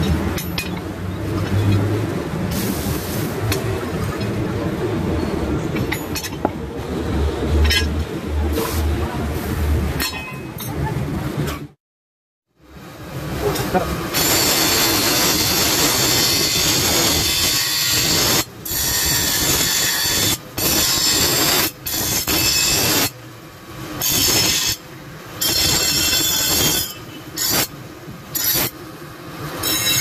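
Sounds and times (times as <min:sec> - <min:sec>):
metal grinding screech: 0:14.2 - 0:23.1, 0:25.4 - 0:27.7, 0:29.6 - 0:30.0.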